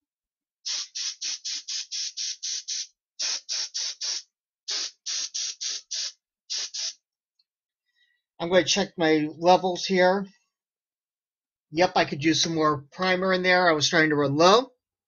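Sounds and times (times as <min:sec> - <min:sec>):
spray gun hissing in bursts: 0:00.6 - 0:07.0.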